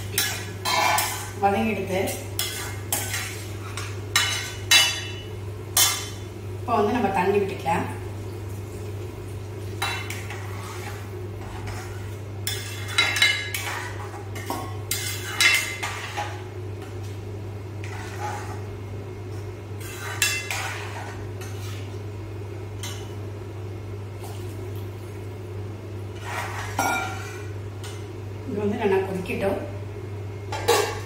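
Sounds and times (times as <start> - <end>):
steel ladle scraping a pan: 0.2 - 1.4, 2.4 - 5.1, 9.8 - 16.3, 17.8 - 18.7, 19.8 - 21.9, 26.2 - 27.4.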